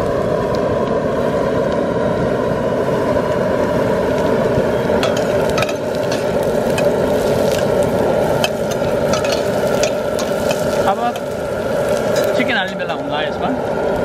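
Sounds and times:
onions frying: 0.0 - 14.0
propane burner roaring: 0.0 - 14.0
metal spoon scraping pot: 8.4 - 11.3.

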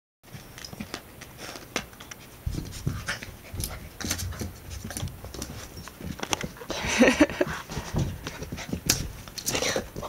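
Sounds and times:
puppy scuffling: 0.3 - 10.0
soft low thumps: 2.4 - 9.3.

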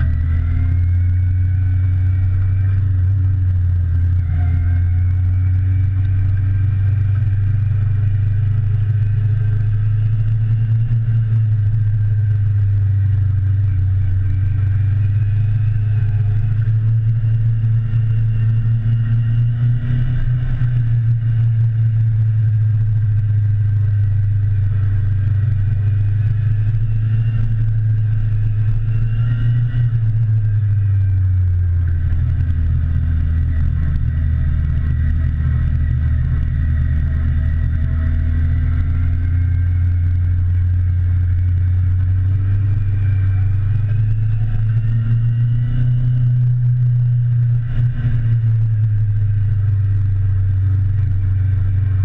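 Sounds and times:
heavy low rumble: 0.0 - 52.0
motorcycle engine running: 0.0 - 52.0.

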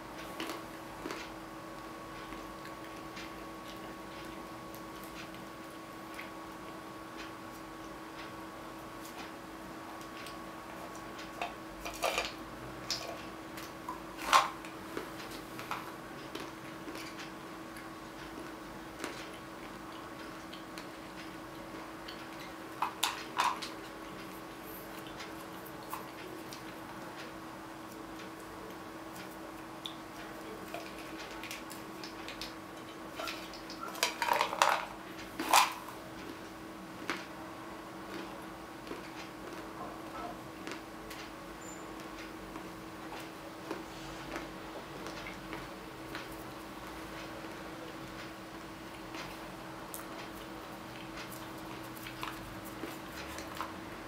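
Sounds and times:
faint steady hum: 0.0 - 54.0
peanuts rattling in a metal tin: 33.9 - 35.9.

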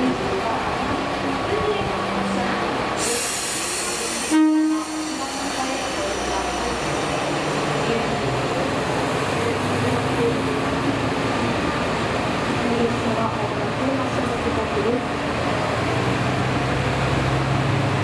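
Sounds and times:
air hiss: 3.0 - 7.8
train horn toot: 4.2 - 5.4.

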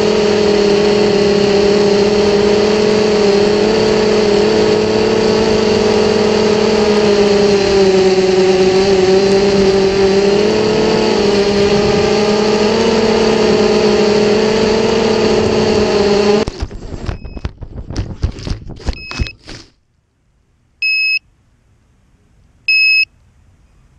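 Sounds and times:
quadcopter motors whining: 0.0 - 17.4
knocks and rustling: 16.4 - 19.8
high buzzer beep: 20.8 - 21.2, 22.7 - 23.1
short beeps: 20.8 - 21.3, 22.7 - 23.1.

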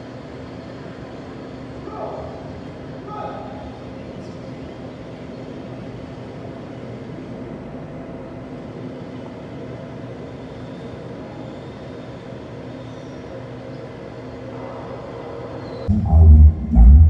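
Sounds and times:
crowded hall rumble: 13.4 - 17.0
loud bass-heavy music: 15.9 - 17.0.

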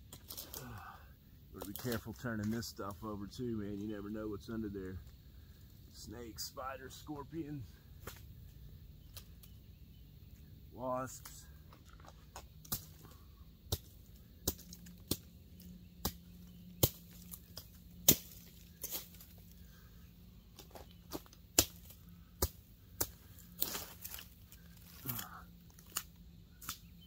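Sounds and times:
rustling plant material: 0.0 - 9.6, 14.0 - 27.0
machete chopping brush stems: 1.6 - 2.6, 12.3 - 19.4, 20.6 - 27.0.

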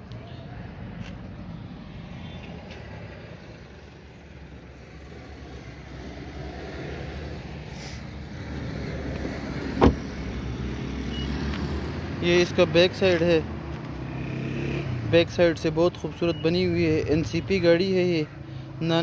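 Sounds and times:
motor vehicle engine rumble: 0.0 - 17.4
sharp thud: 9.8 - 10.1.

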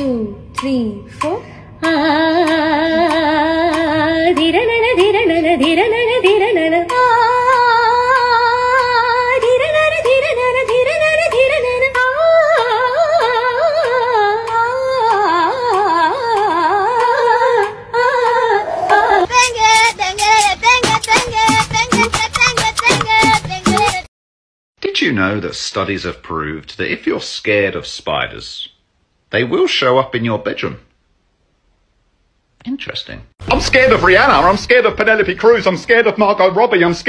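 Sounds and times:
woman singing with vibrato: 0.0 - 24.1.

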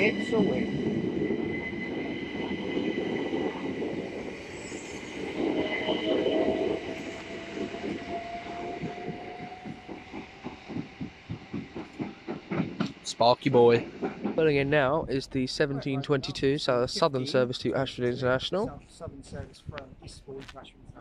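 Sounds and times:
train wheels rolling on rail: 0.0 - 15.6.

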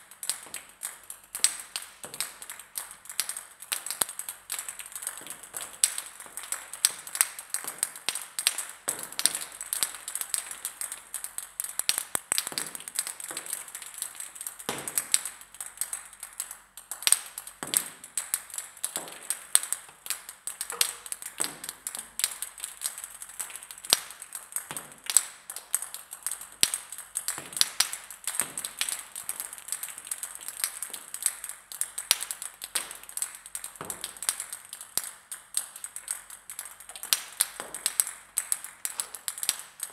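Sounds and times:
table tennis balls bouncing: 20.6 - 22.1.

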